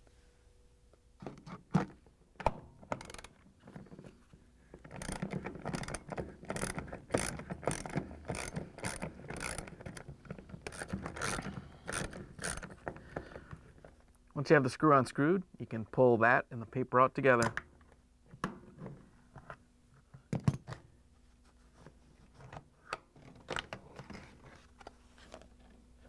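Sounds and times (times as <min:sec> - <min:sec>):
ratchet wrench clicking: 0:03.0 - 0:03.3, 0:04.9 - 0:10.0, 0:10.6 - 0:12.7.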